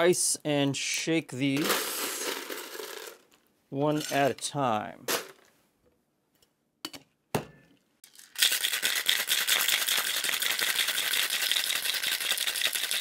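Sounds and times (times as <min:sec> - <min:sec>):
ice rattling in metal shaker: 0:01.6 - 0:03.3, 0:08.0 - 0:13.0.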